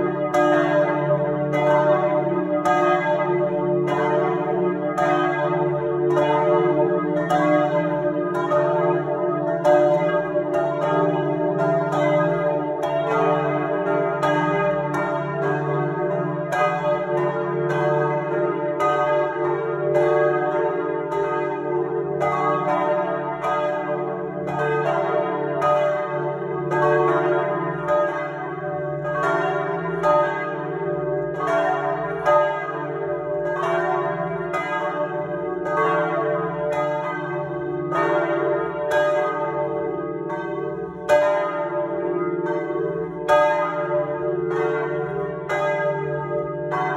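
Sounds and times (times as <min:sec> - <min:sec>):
church bells ringing: 0:00.0 - 0:46.9.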